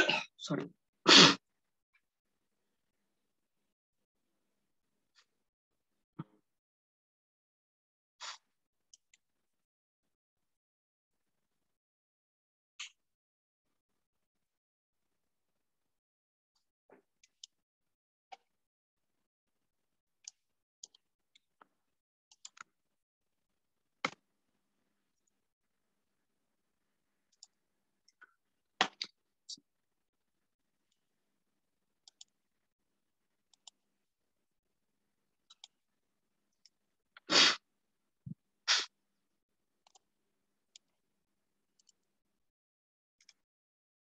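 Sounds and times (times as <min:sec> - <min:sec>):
keyboard and mouse clicks: 0:22.3 - 0:22.8, 0:24.0 - 0:24.2, 0:32.0 - 0:32.4, 0:35.5 - 0:35.8, 0:39.8 - 0:40.1, 0:41.8 - 0:42.1.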